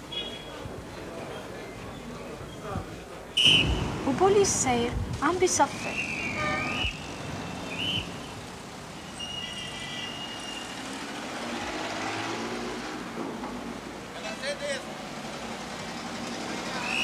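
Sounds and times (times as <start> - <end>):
street traffic: 0.0 - 17.0
police whistle: 3.4 - 3.8, 5.8 - 8.4, 9.0 - 10.8, 16.8 - 17.0.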